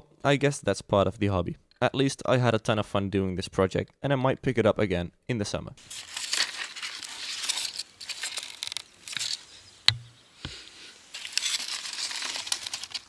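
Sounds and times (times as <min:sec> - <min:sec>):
rustling in grass: 0:05.8 - 0:13.0.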